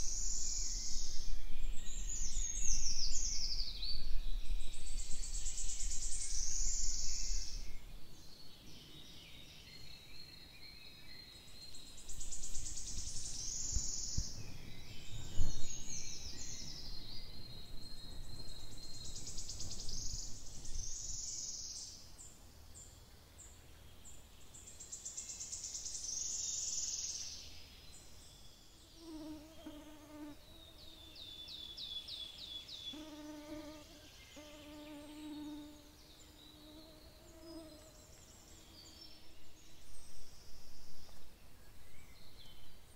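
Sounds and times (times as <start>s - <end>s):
songbirds singing: 0.0s - 42.9s
insect buzzing: 29.0s - 31.0s, 32.9s - 38.2s.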